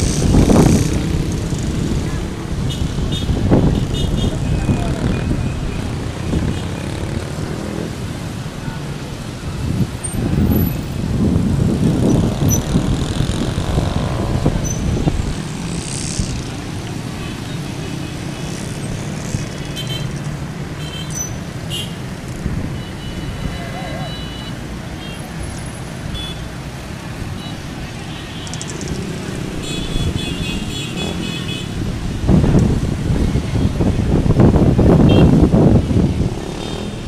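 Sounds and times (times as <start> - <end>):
motorcycle and car traffic rumble: 0.0 - 37.0
voices: 1.0 - 11.0, 23.1 - 26.3.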